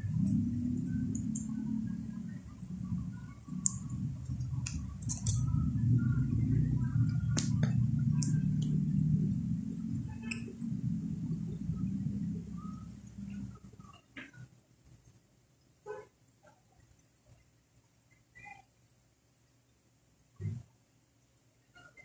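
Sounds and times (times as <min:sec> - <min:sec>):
low background hum: 0:00.0 - 0:22.0
sharp clicks: 0:03.5 - 0:05.6.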